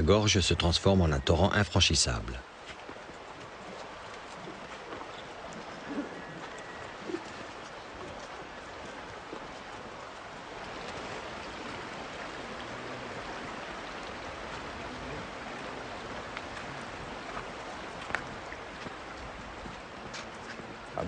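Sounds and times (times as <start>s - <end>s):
shallow stream rushing over stones: 0.0s - 21.0s.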